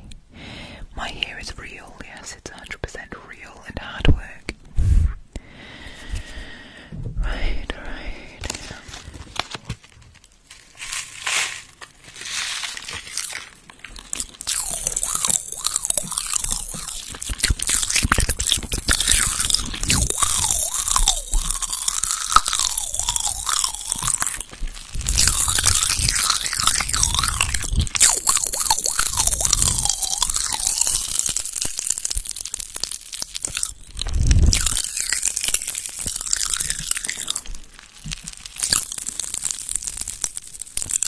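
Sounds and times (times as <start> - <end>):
popping candy crackling in mouth: 7.7 - 41.0
wet mouth and tongue sounds: 12.7 - 41.0.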